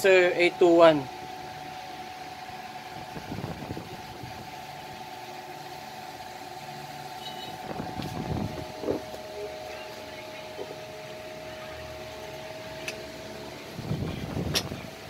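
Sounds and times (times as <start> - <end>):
faint high tone: 9.3 - 10.8.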